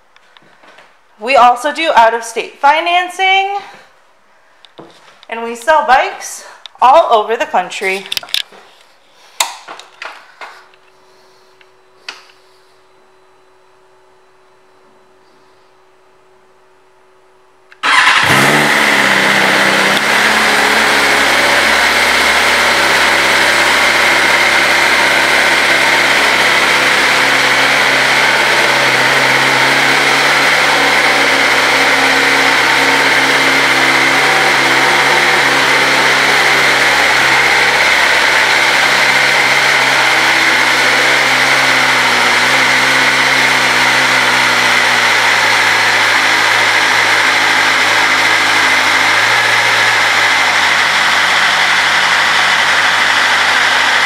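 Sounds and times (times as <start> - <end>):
motorcycle engine starting and idling: 17.7 - 54.0.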